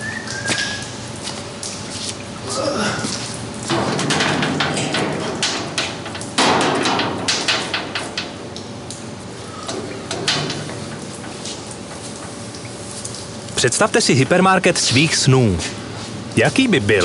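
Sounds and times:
sharp knocks and clatters: 3.6 - 8.7, 9.7 - 12.4.

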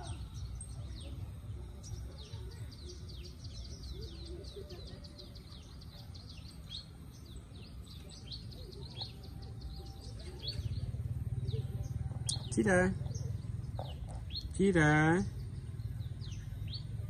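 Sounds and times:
small birds chirping: 0.0 - 17.0
low background rumble: 5.1 - 17.0.

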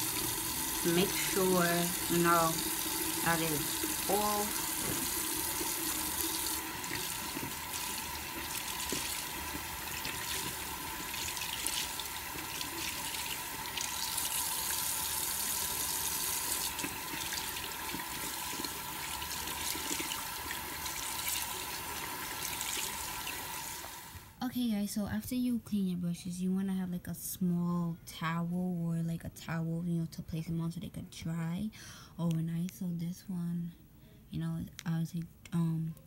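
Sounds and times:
water splashing on sponge: 0.8 - 23.6
tap running into sink: 4.6 - 13.0.

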